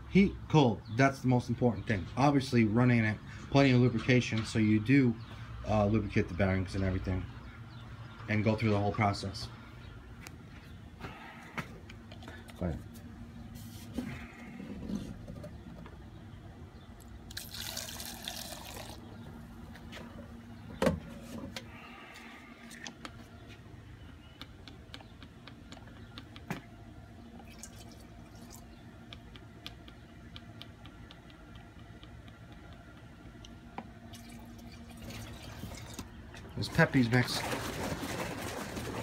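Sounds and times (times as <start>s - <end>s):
fuel pouring and splashing: 17.3s - 19.1s, 27.4s - 28.6s, 34.1s - 36.1s, 36.8s - 39.0s.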